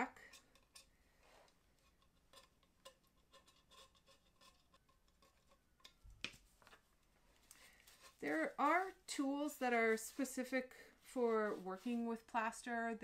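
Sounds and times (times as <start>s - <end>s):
hand tool scraping plaster: 0.0s - 6.0s.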